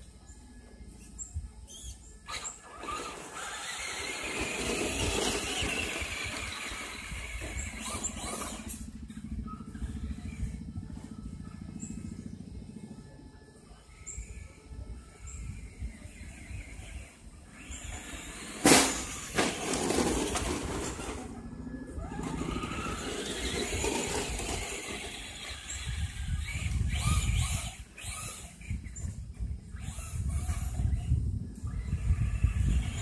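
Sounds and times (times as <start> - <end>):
toy truck motor whining: 1.1 - 10.7, 13.9 - 33.0
low rumble: 19.0 - 27.7.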